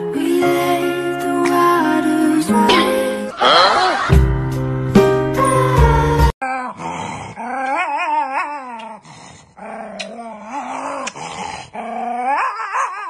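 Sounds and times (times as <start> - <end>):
dog howling: 11.8 - 13.0.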